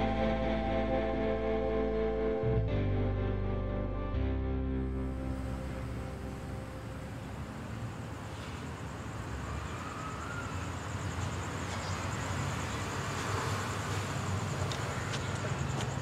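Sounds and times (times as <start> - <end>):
noisy hiss: 4.8 - 9.3
distant traffic rumble: 5.1 - 16.0.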